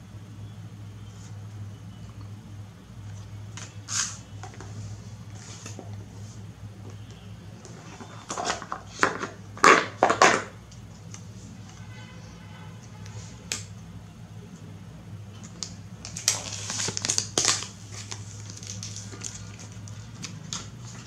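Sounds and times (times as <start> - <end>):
plastic wrap crinkling: 15.6 - 21.0.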